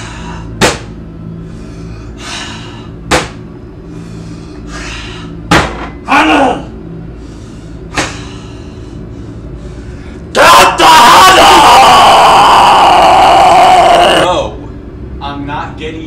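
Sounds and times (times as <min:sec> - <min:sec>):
low droning music: 0:00.0 - 0:16.0
sharp thuds: 0:00.6 - 0:01.0, 0:03.1 - 0:03.4
loud breath: 0:01.4 - 0:03.0, 0:03.8 - 0:05.4, 0:07.1 - 0:10.3.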